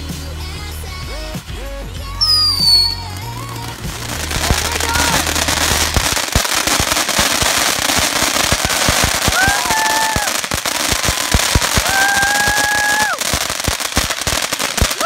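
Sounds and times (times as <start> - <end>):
firework crackling and popping: 0.0 - 15.0
high-pitched calls: 2.2 - 3.5.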